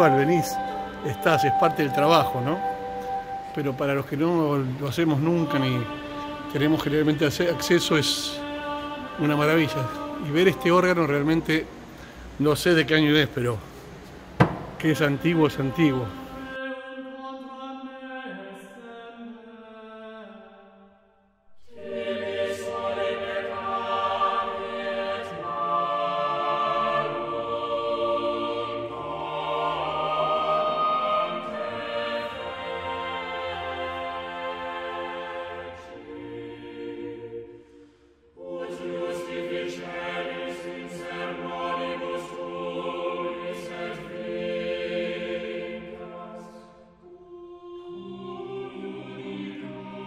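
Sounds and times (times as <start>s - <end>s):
held sung tones: 0.0s - 11.9s
choral music: 0.0s - 50.0s.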